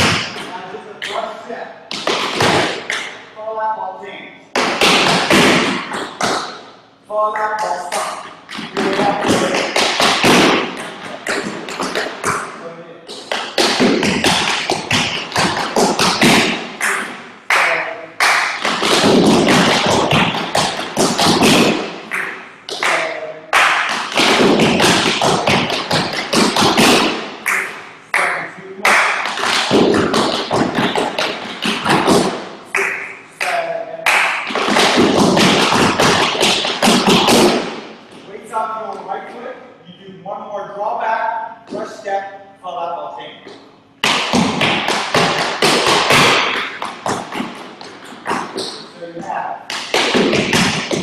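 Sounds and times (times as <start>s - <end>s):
tap shoes on wooden boards: 13.1s - 16.6s, 29.2s - 32.3s, 34.4s - 37.7s, 44.0s - 48.7s, 49.7s - 51.0s.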